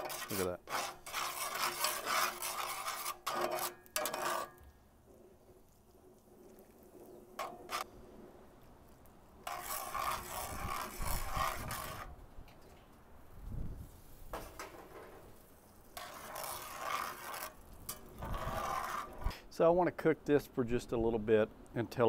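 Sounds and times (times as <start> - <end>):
metal spatula scraping skillet: 0.0 - 5.5, 6.5 - 7.9, 9.4 - 12.2, 15.9 - 19.4.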